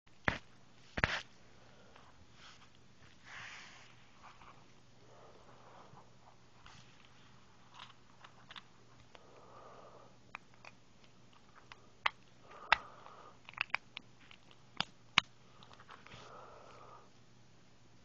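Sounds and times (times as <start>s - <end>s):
soft handling rustle: 0.2s - 9.2s, 15.4s - 16.8s
plastic pieces clicking: 10.3s - 16.0s.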